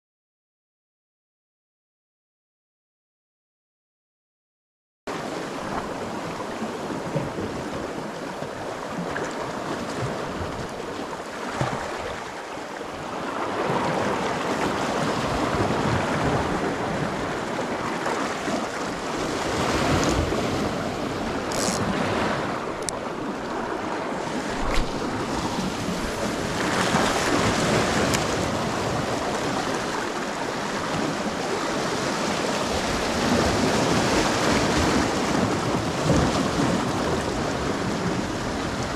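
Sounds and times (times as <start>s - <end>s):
sea waves washing over rocks: 5.1s - 38.9s
wind on microphone: 13.0s - 38.9s.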